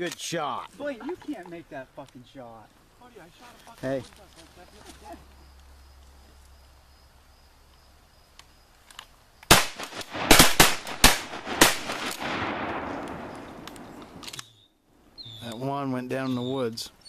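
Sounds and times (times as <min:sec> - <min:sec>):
shotgun shots: 0:09.5 - 0:14.4.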